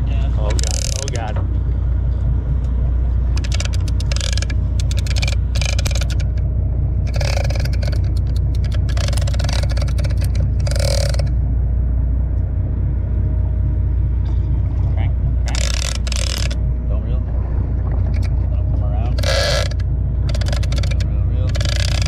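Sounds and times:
steady low rumble: 0:00.0 - 0:22.0
fishing reel whirring and clicking: 0:00.5 - 0:01.3, 0:03.3 - 0:11.3, 0:15.4 - 0:16.6, 0:18.1 - 0:18.4, 0:19.1 - 0:22.0.

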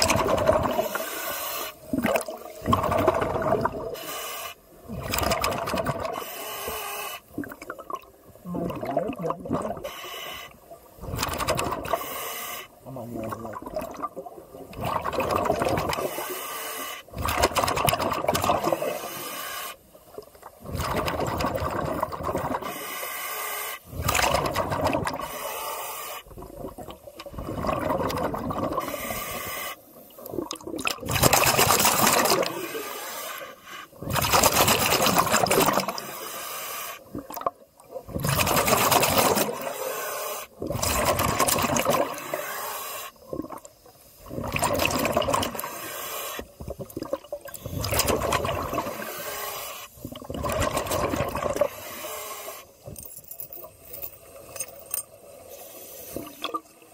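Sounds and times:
air bubbles gurgling underwater: 0:00.0 - 0:01.0, 0:01.8 - 0:04.0, 0:04.8 - 0:06.2, 0:07.3 - 0:09.9, 0:11.0 - 0:12.0, 0:13.0 - 0:16.3, 0:17.1 - 0:19.0, 0:20.1 - 0:22.8, 0:24.0 - 0:25.3, 0:26.3 - 0:29.1, 0:30.1 - 0:32.9, 0:34.0 - 0:36.2, 0:37.0 - 0:39.7, 0:40.5 - 0:42.4, 0:43.2 - 0:45.7, 0:46.5 - 0:49.2, 0:50.0 - 0:51.7.

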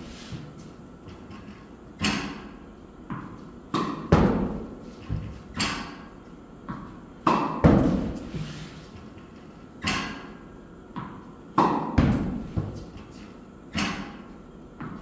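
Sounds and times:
racket hitting tennis ball: 0:02.0 - 0:08.4, 0:09.8 - 0:13.0, 0:13.7 - 0:15.0
tennis ball bouncing on court: 0:03.1 - 0:06.0, 0:06.6 - 0:08.1, 0:10.9 - 0:12.8.

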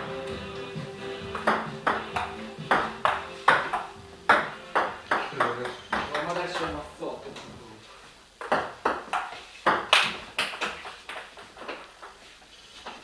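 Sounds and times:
ball bouncing on table: 0:01.3 - 0:06.8, 0:08.4 - 0:11.8
ball clicking off paddles: 0:01.3 - 0:06.8.

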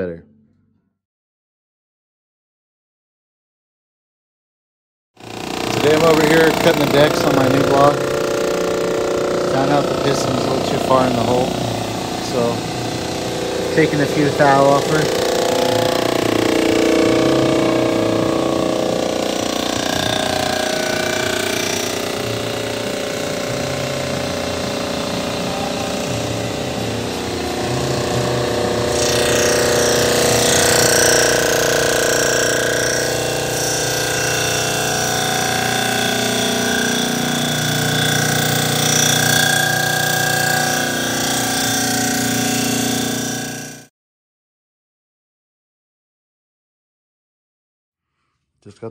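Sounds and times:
machine cutter head whining: 0:05.2 - 0:43.9.

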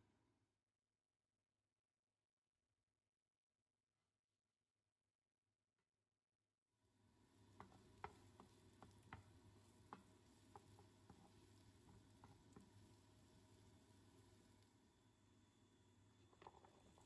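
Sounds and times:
faint sizzle in frying pan: 0:06.9 - 0:17.0
wooden spatula tapping pan: 0:07.5 - 0:13.7.

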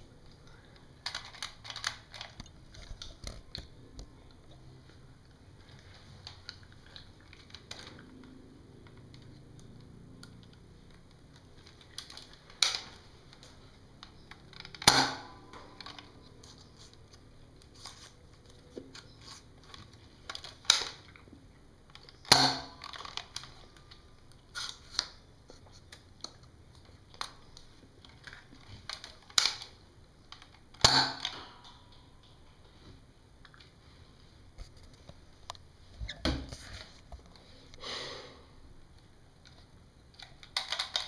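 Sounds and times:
dart blaster firing snaps: 0:14.8 - 0:15.4.

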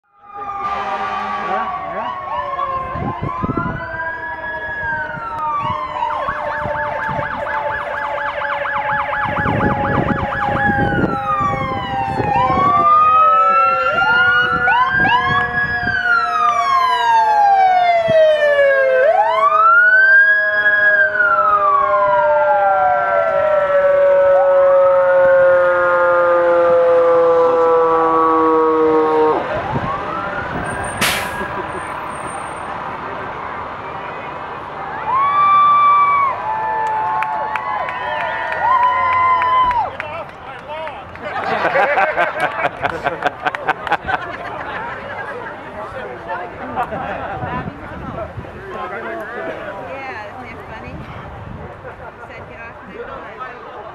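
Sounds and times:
long slowly falling siren tone: 0:00.0 - 0:32.0
fast yelp siren: 0:00.0 - 0:32.2, 0:34.9 - 0:39.9
wailing sirens: 0:00.0 - 0:40.4.

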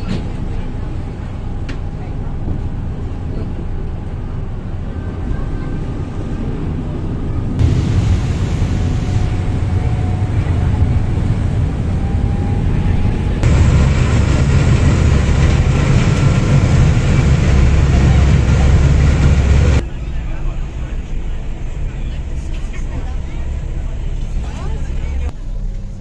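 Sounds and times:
boat engines rumbling: 0:00.0 - 0:26.0
water rushing in wake: 0:07.6 - 0:12.7, 0:13.4 - 0:19.8.

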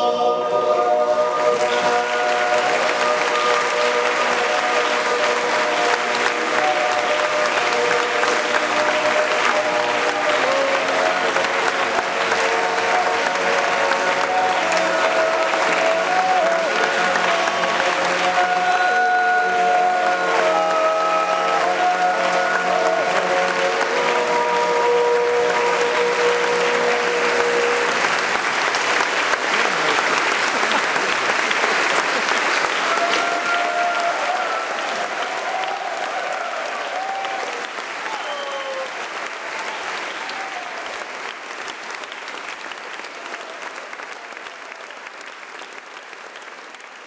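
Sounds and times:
men's choir holding a chord: 0:00.0 - 0:27.9
audience applauding: 0:00.0 - 0:47.0.

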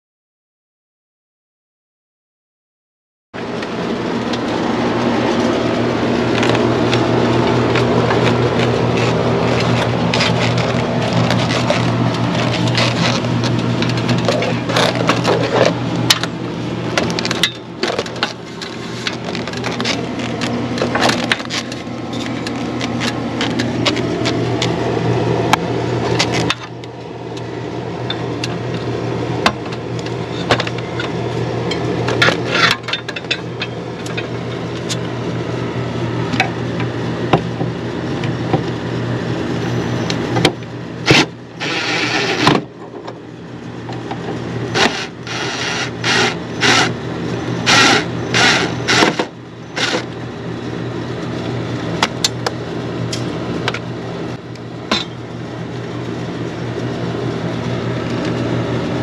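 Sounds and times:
steady mechanical hum: 0:03.4 - 0:59.0
cordless drill running in bursts: 0:41.6 - 0:42.4, 0:44.7 - 0:47.0, 0:47.6 - 0:49.2, 0:49.8 - 0:50.0.

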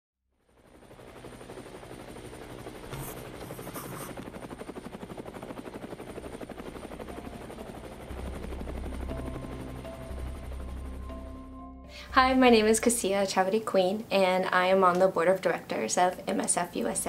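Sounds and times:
helicopter rotor chop: 0:00.4 - 0:11.1
thin high whine: 0:02.8 - 0:05.0.

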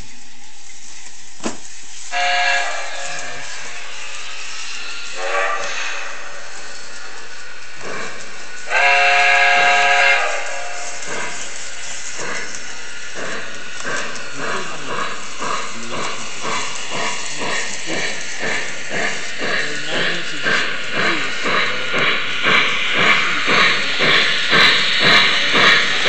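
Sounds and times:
steam hiss: 0:00.0 - 0:26.0
steam locomotive chuffing: 0:00.0 - 0:26.0
chime steam whistle: 0:02.1 - 0:06.7, 0:08.7 - 0:10.9.

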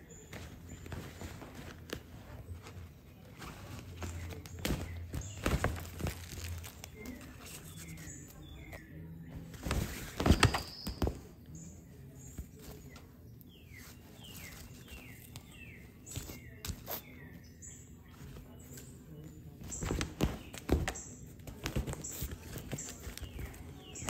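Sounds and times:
fabric tunnel rustling: 0:00.0 - 0:08.8, 0:09.4 - 0:11.2.

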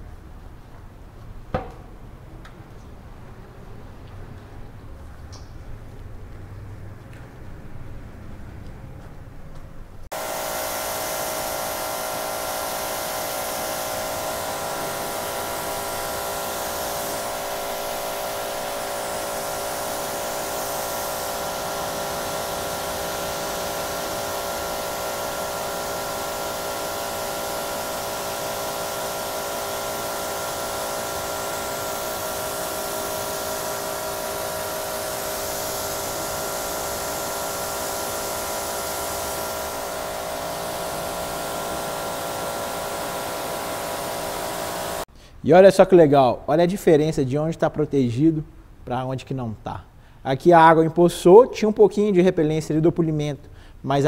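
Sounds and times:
pressure washer running: 0:01.5 - 0:01.9, 0:10.1 - 0:45.1
water jet hissing: 0:10.1 - 0:45.1.

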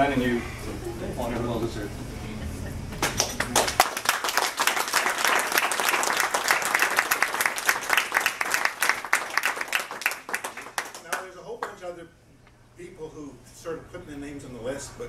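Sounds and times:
people applauding: 0:03.0 - 0:11.8.

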